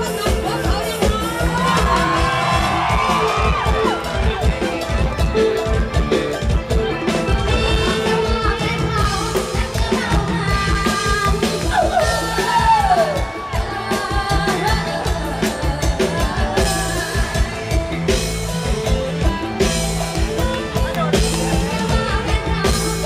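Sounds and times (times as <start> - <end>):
live band music through pa: 0.0 - 23.0
steady drum beat: 0.0 - 23.0
woman singing into microphone: 7.6 - 18.3, 21.5 - 23.0.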